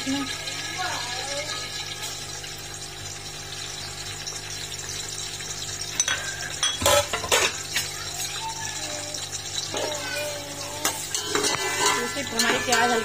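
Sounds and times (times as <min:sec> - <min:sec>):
onions sizzling in hot oil: 0:00.0 - 0:13.0
utensil clinking against pot: 0:05.9 - 0:08.4, 0:10.8 - 0:13.0.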